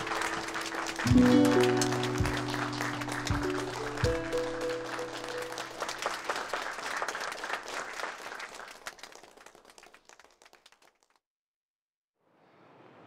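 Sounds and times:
held musical note: 0.0s - 6.3s
small group clapping: 0.0s - 11.2s.

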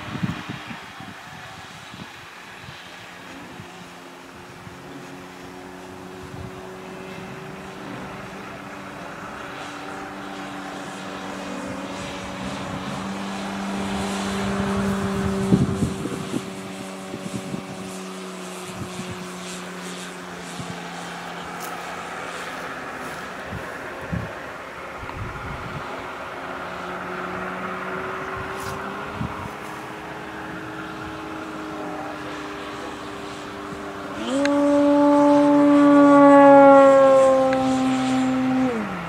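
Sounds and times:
model plane motor humming: 0.0s - 39.0s.

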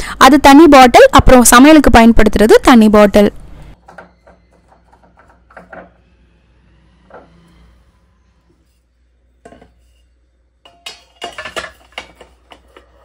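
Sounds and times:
utensils clattering into holder: 10.7s - 12.9s.

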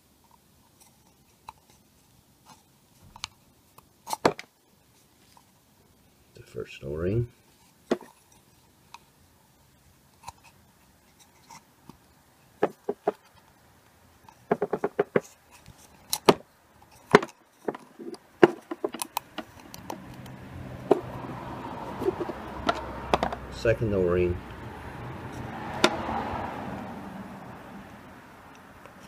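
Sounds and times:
screwdriver clicks and taps: 18.4s - 21.0s.

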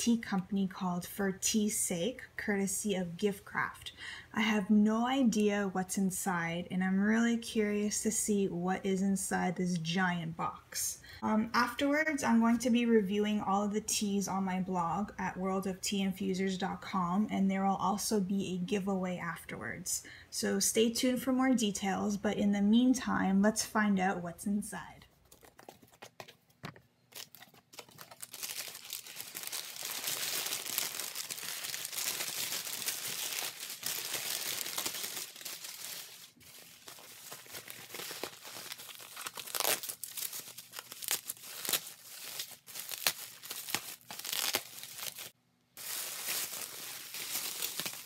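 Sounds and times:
packing material crinkling and tearing: 25.2s - 48.0s.

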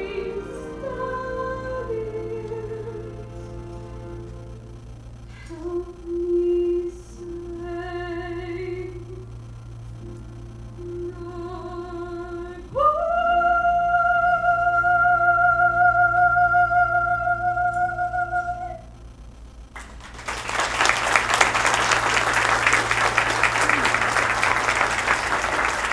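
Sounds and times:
woman singing soprano: 0.0s - 3.2s, 5.4s - 9.2s, 10.8s - 18.9s
audience applause: 19.7s - 25.9s.

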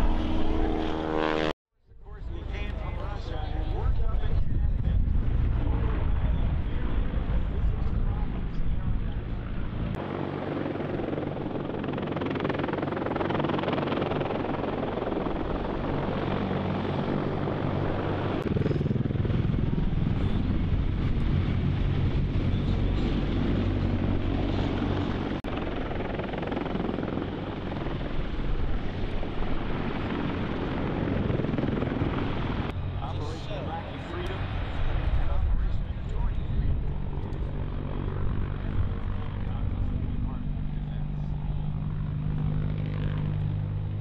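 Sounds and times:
helicopter rotor beat: 0.0s - 44.0s.

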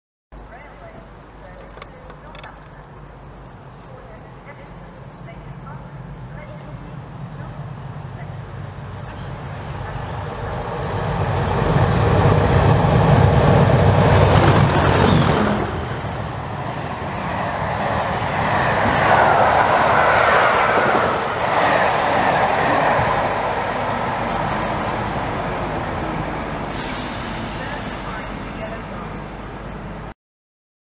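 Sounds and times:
diesel locomotive engines thrashing: 5.4s - 30.1s.

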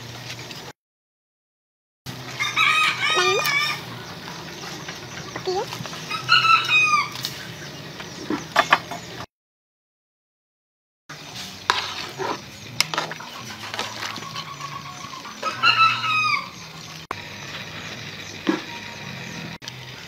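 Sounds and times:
rooster crowing: 2.3s - 4.1s, 6.1s - 7.2s, 14.1s - 16.8s
metal ladle scraping pot: 11.1s - 15.6s.

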